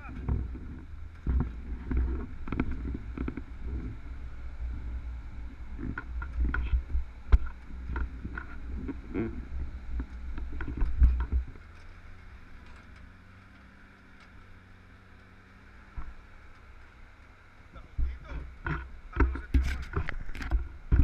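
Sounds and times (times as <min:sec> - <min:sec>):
quiet low hum: 0:00.0 - 0:21.0
truck engine rumble: 0:00.0 - 0:21.0.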